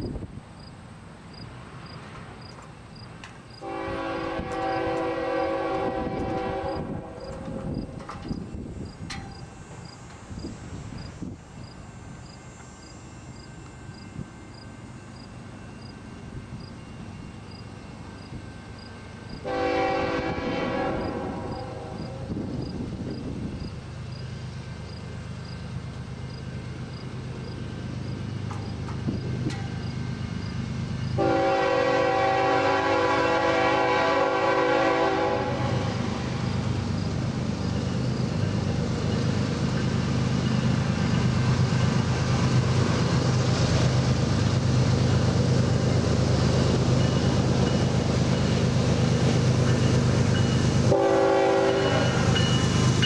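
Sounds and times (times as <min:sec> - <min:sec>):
crickets chirping: 0:00.0 - 0:31.4, 0:35.3 - 0:50.9, 0:51.7 - 0:53.0
diesel locomotive rumble: 0:00.0 - 0:53.0
locomotive air horn blast: 0:03.6 - 0:08.0, 0:19.4 - 0:22.4, 0:31.2 - 0:36.2, 0:50.9 - 0:52.3.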